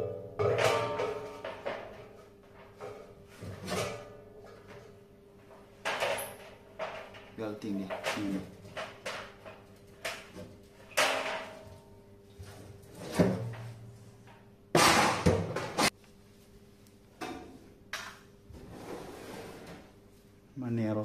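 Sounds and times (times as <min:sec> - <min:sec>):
sheet metal clunks and knocks: 0:00.0 - 0:04.8.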